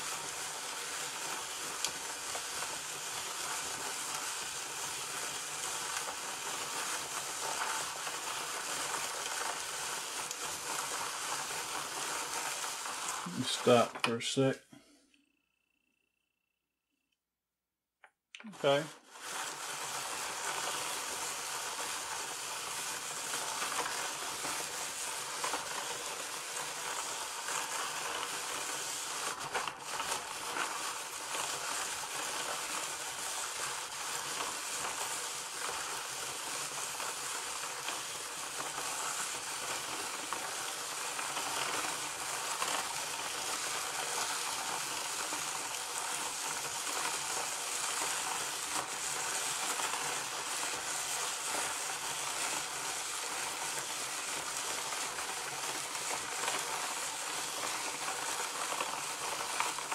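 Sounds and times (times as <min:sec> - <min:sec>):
hand-cranked toy whirring: 0:00.0 - 0:14.2, 0:18.4 - 0:59.9.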